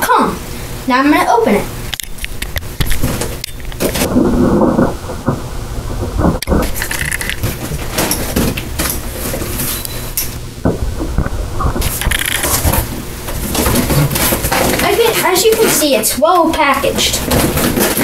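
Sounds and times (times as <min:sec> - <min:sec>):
cardboard rustling: 0:06.2 - 0:09.8, 0:11.0 - 0:18.0
scraping and clicks: 0:06.2 - 0:10.0, 0:11.0 - 0:16.1, 0:16.9 - 0:18.0.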